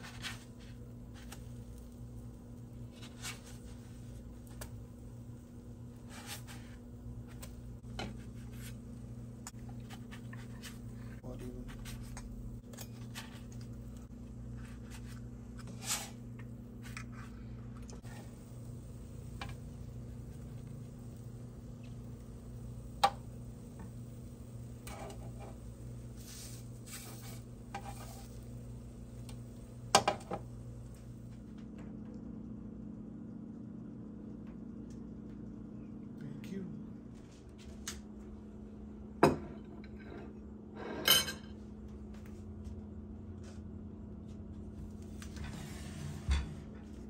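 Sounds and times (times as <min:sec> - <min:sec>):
steady low hum: 0:00.0 - 0:47.0
spatula scraping on griddle: 0:06.0 - 0:08.9, 0:14.6 - 0:16.2, 0:24.8 - 0:28.5.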